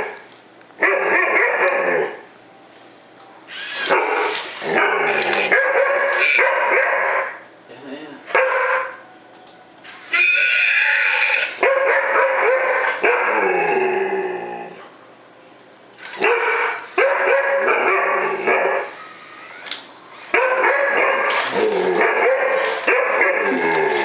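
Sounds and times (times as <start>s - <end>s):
dog barking and yipping: 0.8s - 2.2s, 3.6s - 7.4s, 8.3s - 8.9s, 11.5s - 13.4s, 16.1s - 19.1s, 20.2s - 23.6s.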